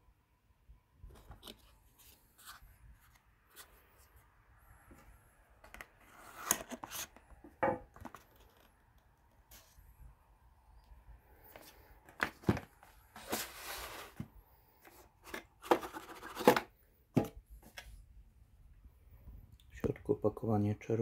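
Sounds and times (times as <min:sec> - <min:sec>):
cardboard box handling: 0:11.5 - 0:17.8.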